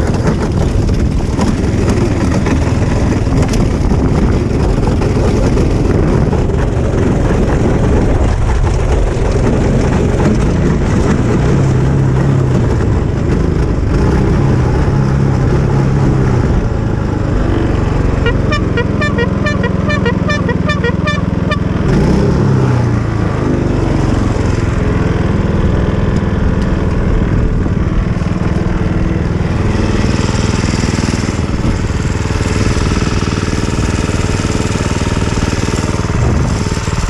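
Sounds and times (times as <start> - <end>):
wheels over grass and gravel: 0.0 - 18.2, 23.6 - 37.0
go-kart engine running: 0.0 - 37.0.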